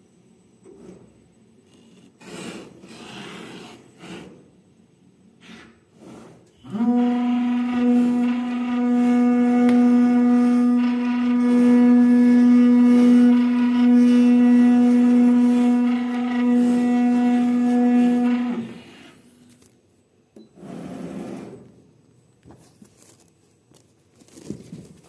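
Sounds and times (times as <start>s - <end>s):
cutting machine humming: 6.6s - 19.2s.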